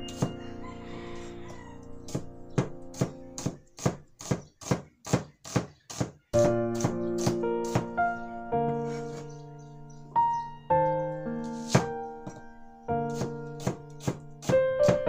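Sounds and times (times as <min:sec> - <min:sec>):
background piano music: 0:00.0 - 0:04.2, 0:06.3 - 0:15.0
cleaver chopping onion on board: 0:02.1 - 0:08.0, 0:11.5 - 0:12.4, 0:13.1 - 0:15.0.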